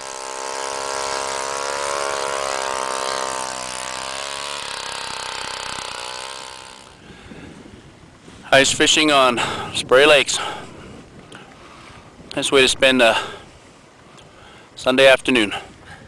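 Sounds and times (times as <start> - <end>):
ice auger engine drilling: 0.0 - 7.2.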